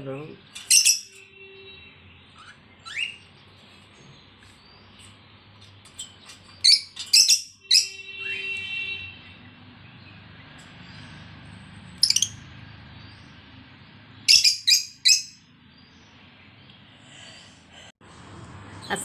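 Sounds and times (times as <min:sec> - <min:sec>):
birds chirping: 0:00.0 - 0:17.9
shrill bird screeching: 0:00.6 - 0:01.3, 0:02.2 - 0:03.3, 0:06.6 - 0:08.9, 0:14.3 - 0:15.4.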